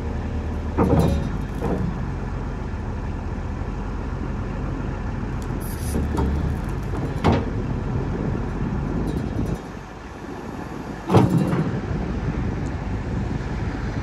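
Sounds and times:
hydraulic arm working: 0:00.0 - 0:02.4, 0:05.4 - 0:12.4
excavator diesel engine running: 0:00.0 - 0:14.0.

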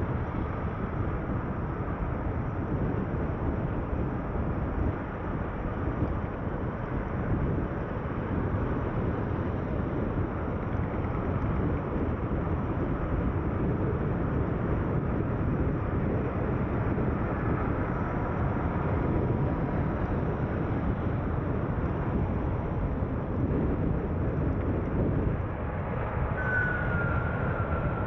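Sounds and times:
car road and engine rumble: 0:00.0 - 0:28.0.

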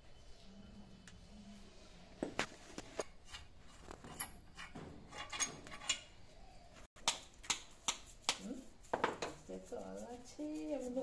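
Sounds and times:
clicks and scrapes of metal parts: 0:02.7 - 0:06.2.

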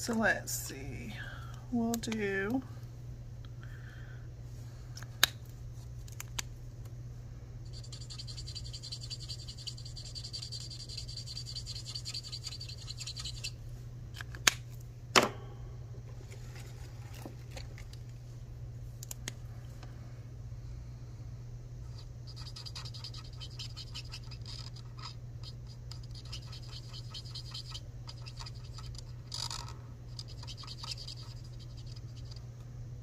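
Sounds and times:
marker scribbling on paper: 0:07.7 - 0:13.5, 0:21.9 - 0:29.4, 0:30.2 - 0:32.4.

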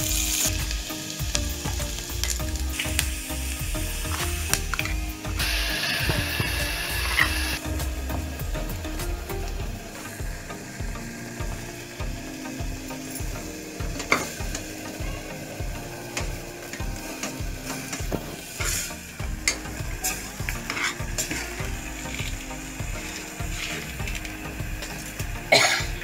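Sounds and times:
food sizzling in oil: 0:00.0 - 0:26.0
steel spoon scraping metal pot: 0:18.5 - 0:24.0.

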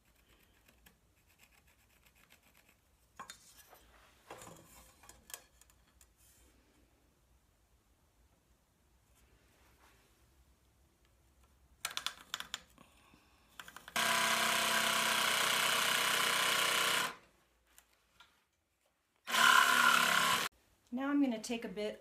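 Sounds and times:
jigsaw cutting wood: 0:13.9 - 0:17.2, 0:19.2 - 0:20.5.

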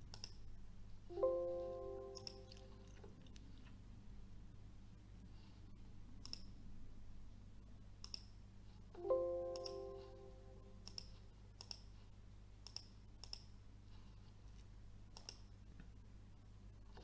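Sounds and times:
computer mouse clicking: 0:00.0 - 0:00.4, 0:02.1 - 0:03.5, 0:06.2 - 0:06.6, 0:08.0 - 0:08.4, 0:09.6 - 0:09.8, 0:10.8 - 0:11.9, 0:12.6 - 0:13.6, 0:15.1 - 0:15.5
computer warning chime: 0:01.1 - 0:02.6, 0:09.0 - 0:10.8.

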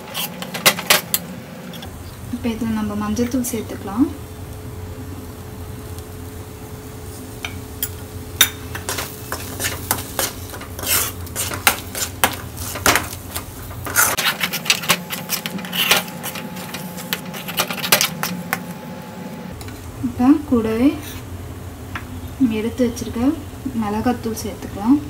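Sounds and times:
metal spoon scraping a pan: 0:00.0 - 0:01.9, 0:07.8 - 0:18.6, 0:20.9 - 0:21.3
faint steady hum: 0:00.0 - 0:25.0.

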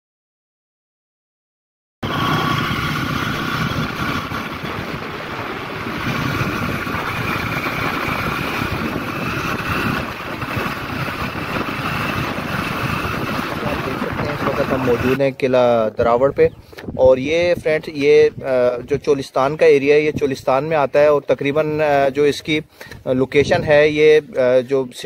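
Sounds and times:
vehicle engine and road noise: 0:02.0 - 0:15.7.

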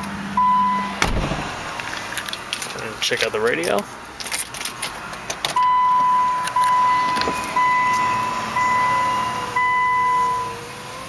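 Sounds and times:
dashboard warning chime beeping: 0:00.4 - 0:01.0, 0:05.6 - 0:10.6.

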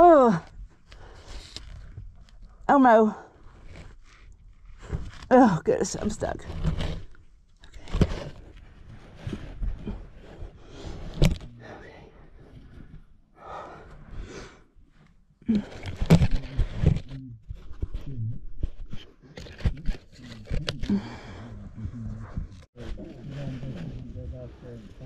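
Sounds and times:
body scraping against rock: 0:06.0 - 0:11.5
effortful breathing: 0:09.6 - 0:16.9, 0:20.8 - 0:22.7.

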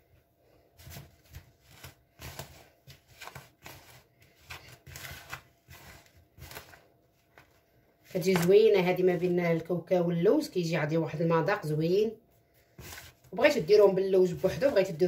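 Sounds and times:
fingers rustling through dry filling: 0:00.8 - 0:08.5.

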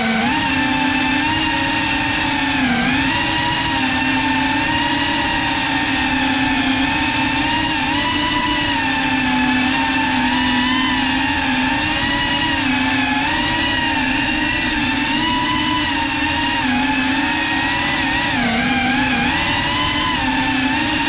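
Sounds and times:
drone motors buzzing: 0:00.0 - 0:21.0.

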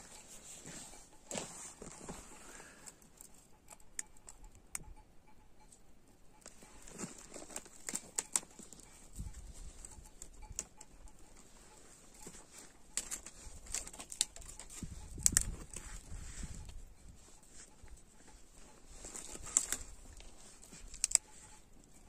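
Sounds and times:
sheep hooves clicking and knocking: 0:06.4 - 0:22.0.

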